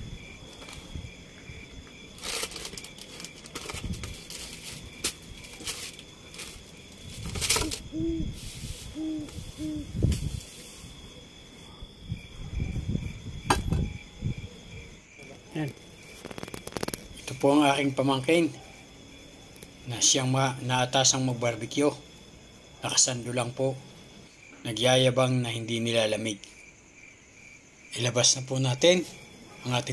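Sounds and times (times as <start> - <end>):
night insects chirping: 0.0 - 29.9
packets rustling: 2.2 - 7.9
objects set down on wooden table: 13.5 - 13.9.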